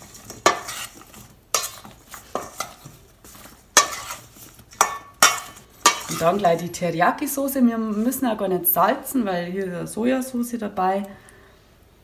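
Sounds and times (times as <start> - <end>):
metal spoon scraping steel bowl: 0.0 - 6.8.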